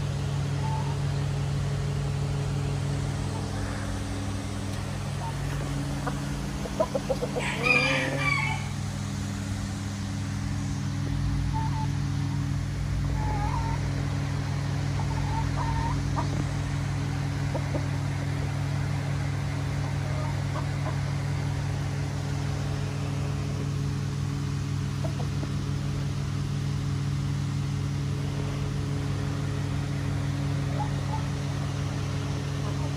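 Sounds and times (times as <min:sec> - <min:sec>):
low machine hum: 0:00.0 - 0:32.9
soft chicken calls: 0:03.2 - 0:08.8, 0:11.5 - 0:13.9, 0:14.8 - 0:18.4, 0:19.6 - 0:21.4, 0:30.5 - 0:31.5.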